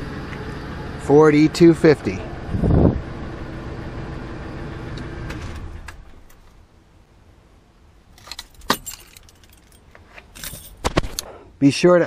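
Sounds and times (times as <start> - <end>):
van engine idling: 0.0 - 6.8
keys clinking: 8.2 - 10.8.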